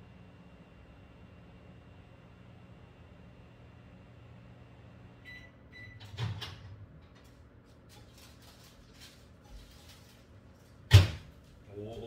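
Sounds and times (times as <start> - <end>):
microwave beeps: 5.2 - 6.3.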